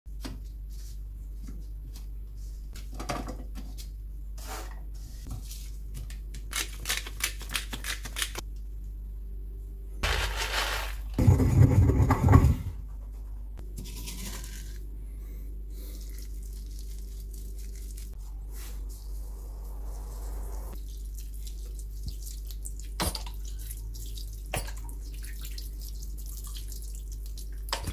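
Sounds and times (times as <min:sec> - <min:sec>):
steady low hum: 0:08.4 - 0:22.7.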